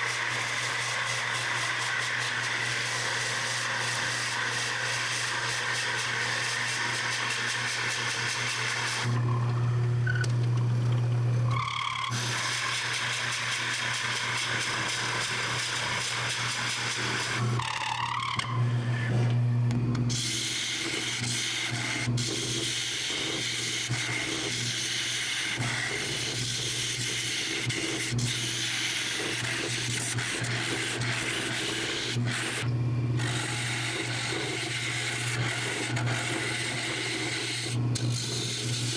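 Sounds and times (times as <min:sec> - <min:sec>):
hiss of cutting wood: 0:00.0 - 0:09.1, 0:20.1 - 0:32.6
lathe motor hum: 0:00.0 - 0:38.9.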